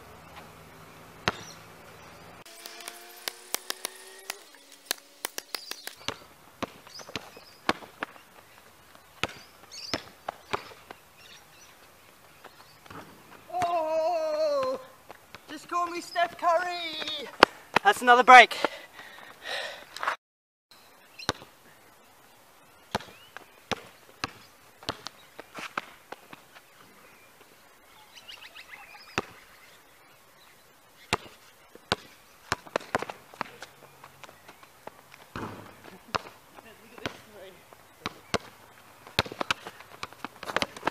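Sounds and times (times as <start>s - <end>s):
basketball bouncing on asphalt: 0.3s - 11.4s, 14.5s - 15.5s, 16.3s - 18.0s, 21.2s - 21.5s, 22.9s - 26.5s, 29.1s - 29.4s, 31.0s - 40.9s
footsteps: 2.4s - 10.9s
faint bird chirps: 20.7s - 25.4s, 26.5s - 32.6s.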